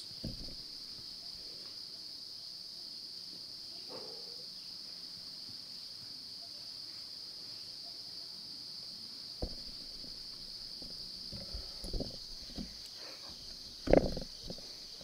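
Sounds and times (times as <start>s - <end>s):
soft bumps and rustles: 0.0s - 1.1s, 9.4s - 15.0s
insects singing: 0.0s - 15.0s
knock: 0.2s - 0.6s, 9.4s - 10.1s.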